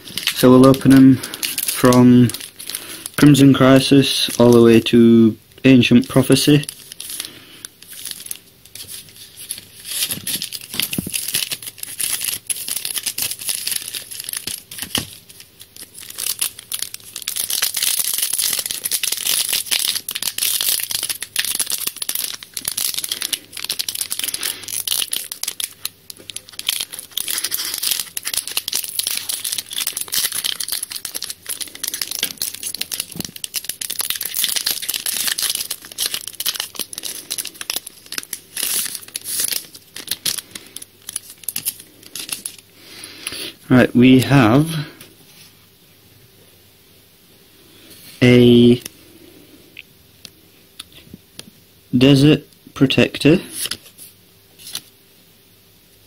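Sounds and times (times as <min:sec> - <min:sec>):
foil wrapper crinkling: 0:00.0 - 0:04.9, 0:05.8 - 0:42.7.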